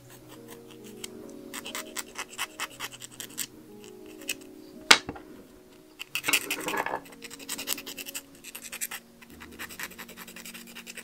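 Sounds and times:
hand tool scraping: 6.2 - 7.5.

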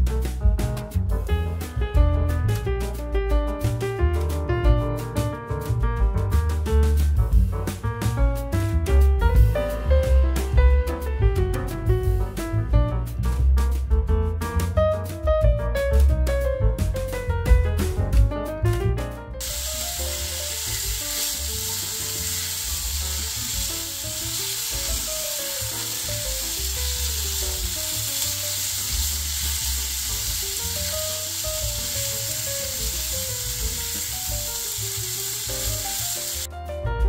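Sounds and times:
garlic and mushrooms sizzling: 19.4 - 36.5.

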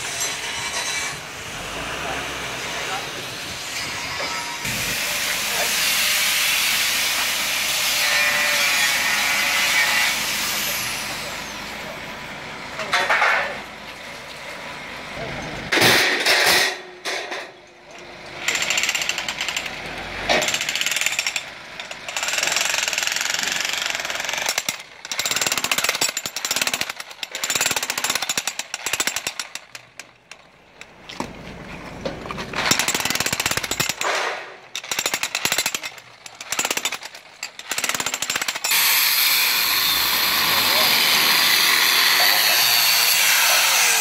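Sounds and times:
chipping hammer breaking concrete: 32.6 - 38.8
angle grinder running: 38.7 - 44.0.

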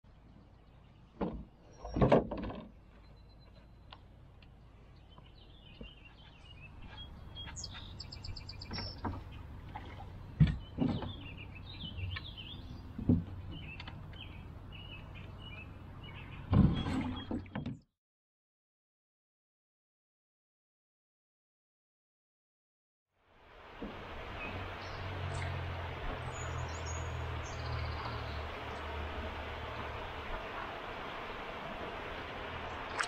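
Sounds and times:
knocks against canoe hull: 1.2 - 2.7
birds chirping: 2.8 - 17.5, 24.2 - 33.0.

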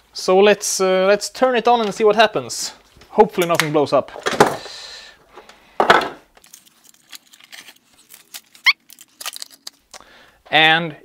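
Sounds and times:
plastic box clicks and knocks: 3.5 - 4.6, 5.8 - 6.2.

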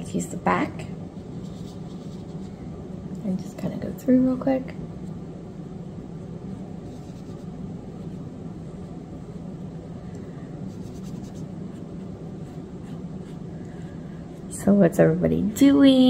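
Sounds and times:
steady low hum: 0.0 - 16.0
fingertips rubbing skin: 10.7 - 12.0.

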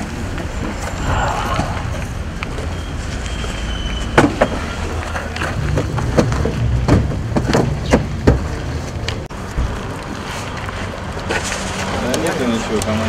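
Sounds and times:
steady low rumble: 0.0 - 3.5.

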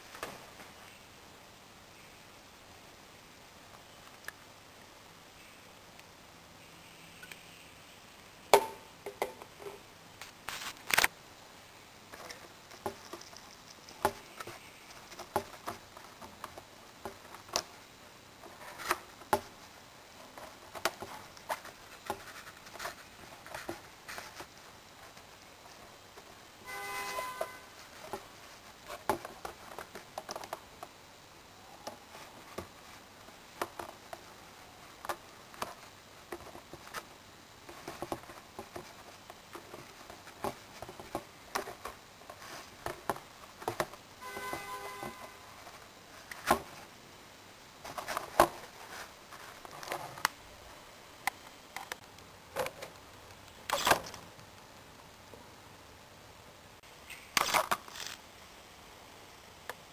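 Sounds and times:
plastic clicks and rustles: 57.1 - 58.2.

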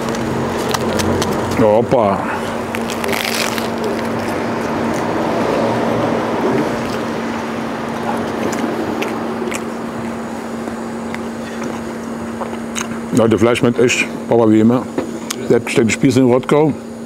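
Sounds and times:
close chewing: 0.0 - 1.6, 2.4 - 5.4, 7.8 - 13.0
steady low hum: 0.0 - 17.0
crunchy bite into bread: 2.7 - 5.1.

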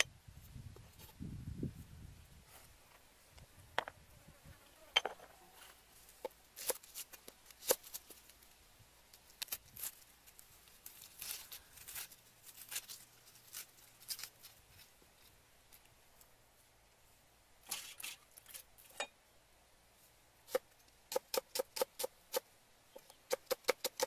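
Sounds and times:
papery skins rustling: 9.2 - 15.3.

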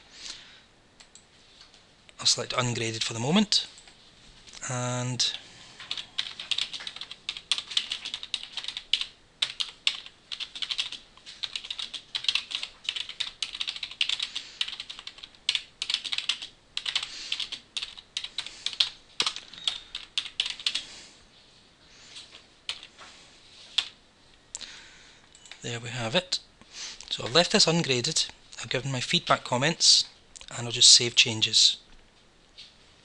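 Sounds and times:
typing on computer keyboard: 5.8 - 20.8, 22.7 - 22.9.

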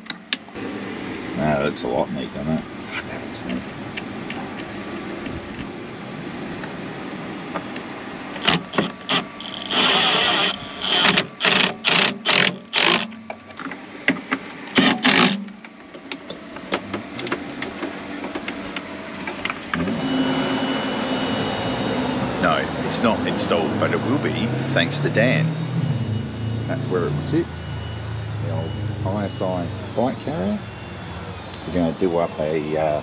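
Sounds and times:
cordless drill whirring: 8.4 - 13.1, 14.8 - 15.4.

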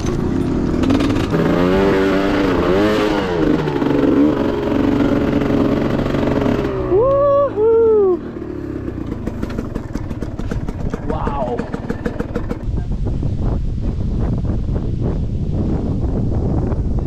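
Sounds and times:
dirt bike engine revving: 0.0 - 12.8.

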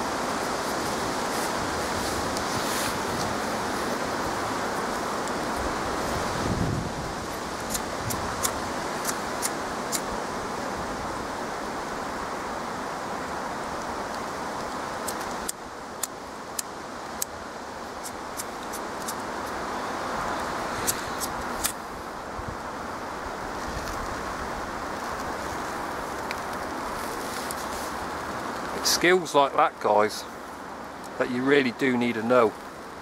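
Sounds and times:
wind rushing: 0.8 - 9.4
sharp clicks and snaps: 7.7 - 10.1, 14.1 - 17.3.

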